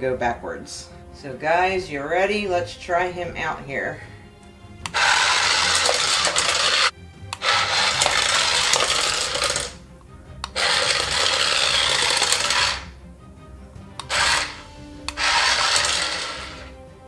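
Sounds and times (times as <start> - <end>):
toy motor and wheels rattling on tile: 4.9 - 9.8, 10.5 - 12.9, 14.0 - 16.7.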